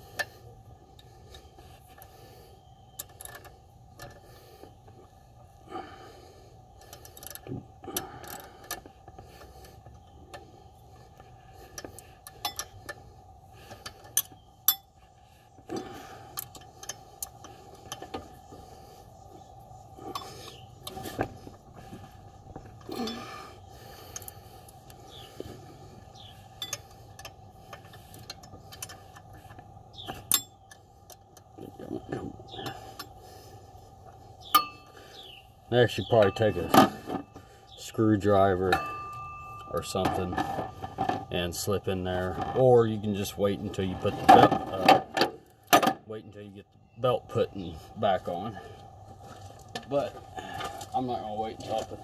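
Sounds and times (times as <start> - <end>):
metal tools clinking and knocking: 38.6 - 41.4.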